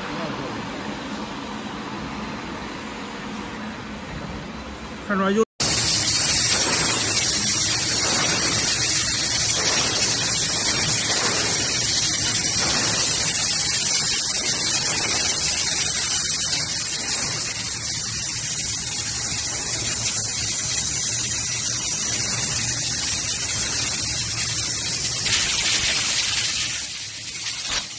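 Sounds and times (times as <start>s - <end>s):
compressed air hissing: 5.6s - 27.9s.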